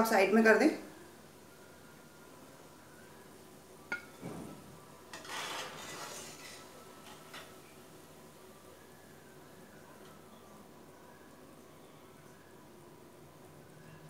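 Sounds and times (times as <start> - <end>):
faint oil sizzling: 4.9 - 10.5
skimmer scraping in pan: 5.1 - 7.6.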